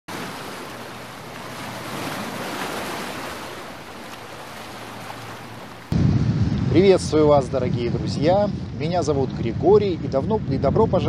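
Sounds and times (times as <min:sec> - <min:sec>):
sea waves washing on shore: 0:00.1 - 0:06.0.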